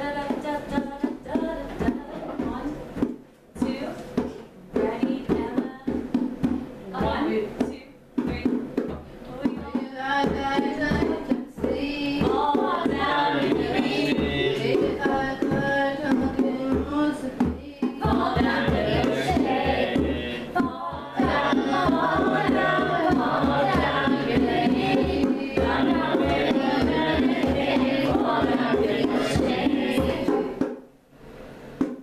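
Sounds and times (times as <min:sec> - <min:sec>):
hand drums beating: 0:00.0 - 0:30.9, 0:31.7 - 0:32.0
group singing folk song: 0:09.7 - 0:30.8.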